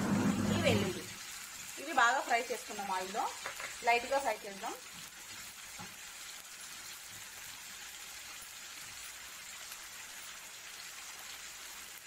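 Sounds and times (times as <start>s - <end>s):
oil sizzling in a frying pan: 0.0s - 12.0s.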